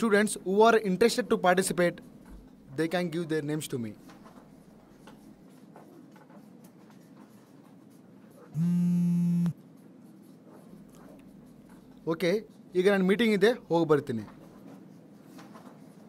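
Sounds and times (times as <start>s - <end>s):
mobile phone vibrating: 8.6s - 9.6s.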